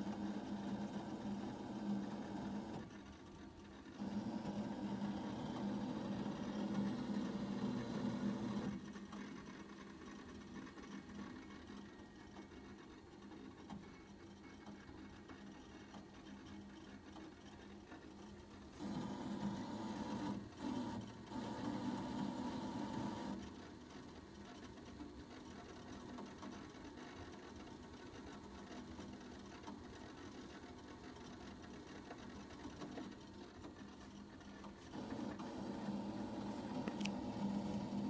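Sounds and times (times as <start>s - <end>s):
printer stepper motors whining: 0.0s - 38.0s.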